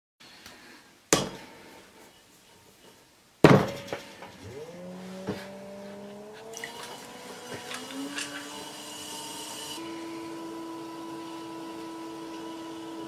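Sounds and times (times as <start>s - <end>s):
pottery wheel motor whine: 4.2s - 13.0s.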